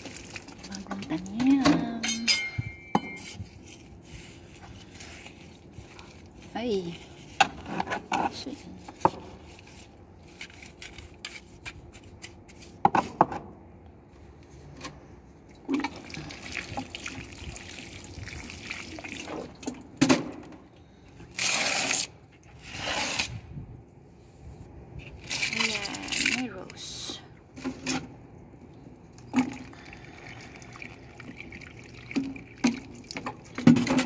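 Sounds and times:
trowel scraping in soil: 21.4 - 23.5.

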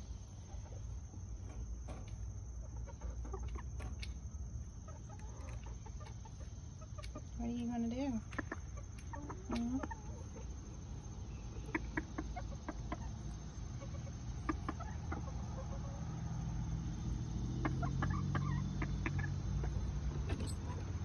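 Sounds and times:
chicken clucking: 0.0 - 20.2.

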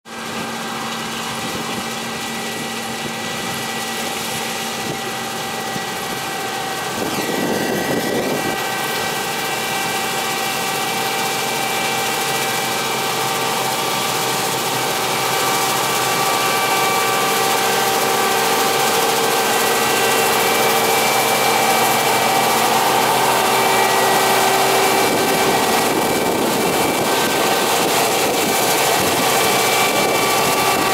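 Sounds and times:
combine harvester running: 0.1 - 30.9.

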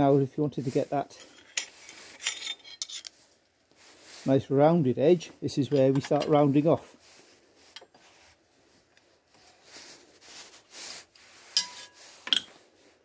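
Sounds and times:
metal scraping on metal: 1.1 - 3.3, 11.3 - 12.6.

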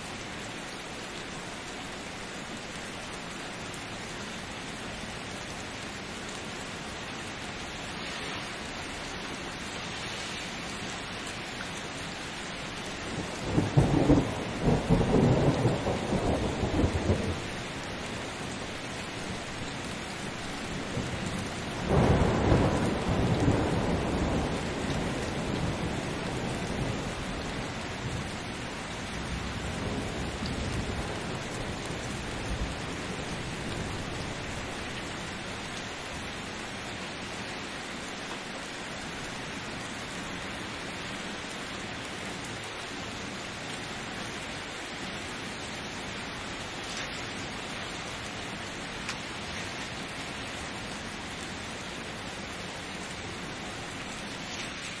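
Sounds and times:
steady rain: 0.0 - 55.0
thunder rolling: 13.4 - 17.4.

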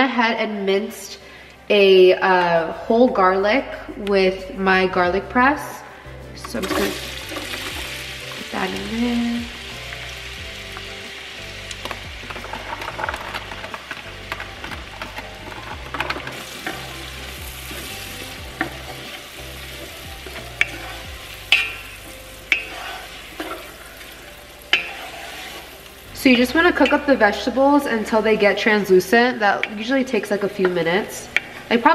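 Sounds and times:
vegetables sizzling in a pot: 5.3 - 31.9
wooden spatula stirring: 11.8 - 27.5
spatula knocking against pot: 21.5 - 21.9.

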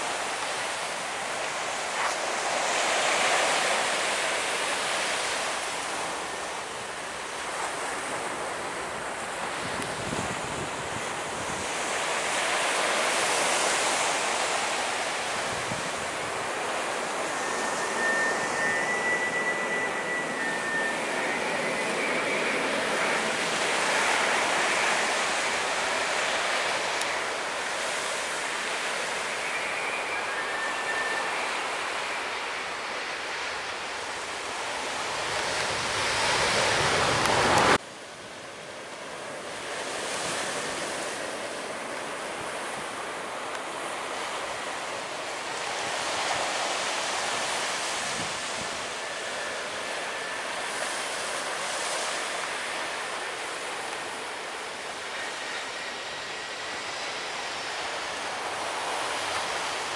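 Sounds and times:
wind on microphone: 7.5 - 12.6, 13.3 - 27.2, 45.6 - 49.3
airliner jet rumble: 15.0 - 27.7.

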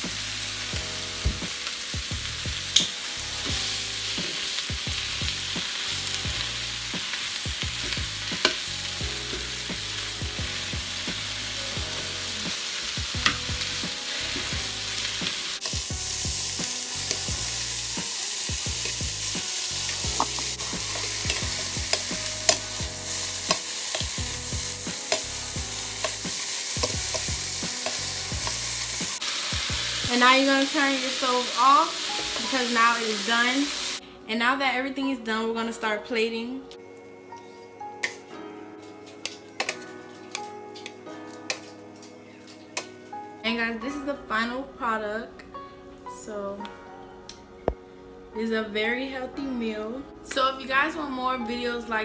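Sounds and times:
spinach sizzling in frying pan: 0.0 - 34.0, 38.8 - 42.9
tongs clicking against pan: 20.2 - 22.6, 25.0 - 25.3, 39.2 - 42.9.

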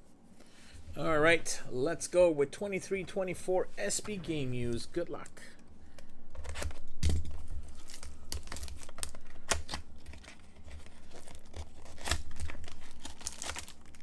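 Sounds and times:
cardboard tearing and crinkling: 6.4 - 14.0.

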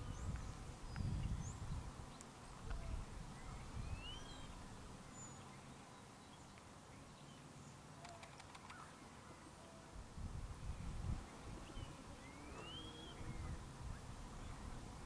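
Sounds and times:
distant small birds chirping: 0.0 - 10.0, 10.6 - 15.0
faint clicks: 8.0 - 8.9.

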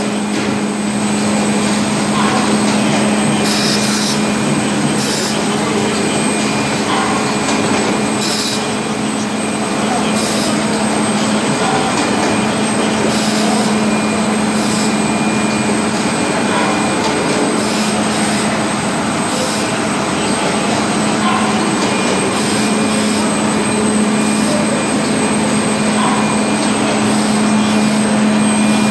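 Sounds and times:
machinery low hum: 0.0 - 28.9.

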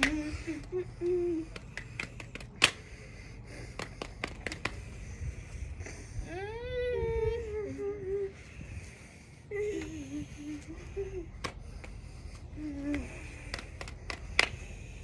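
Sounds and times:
hand claps and slaps: 1.5 - 2.9, 3.6 - 4.9, 12.9 - 14.7.

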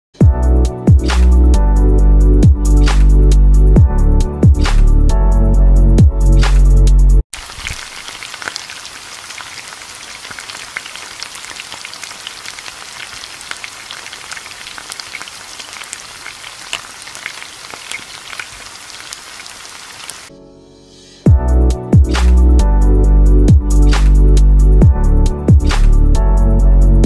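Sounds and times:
stew sizzling in oily sauce: 7.4 - 20.3.

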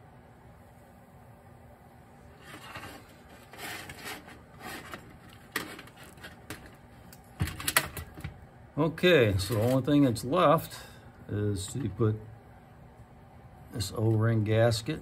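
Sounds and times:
metal parts rubbing and scraping: 2.4 - 6.8.

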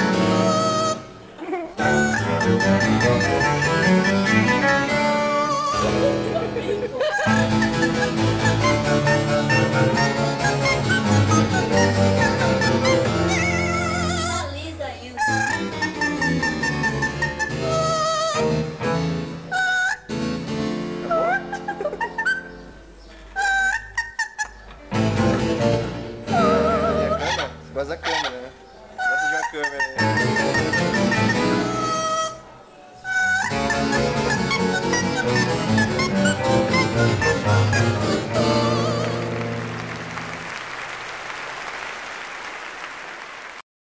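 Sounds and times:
classical instrumental accompaniment: 0.0 - 41.2
parrot singing wavering notes: 7.2 - 14.5, 15.1 - 18.4, 26.3 - 39.4
audience applause: 36.5 - 43.6.

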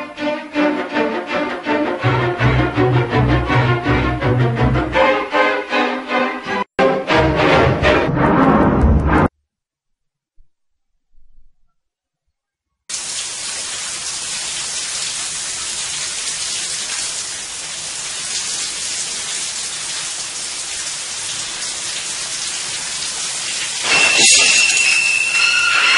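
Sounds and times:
shower water spraying: 12.9 - 25.9.

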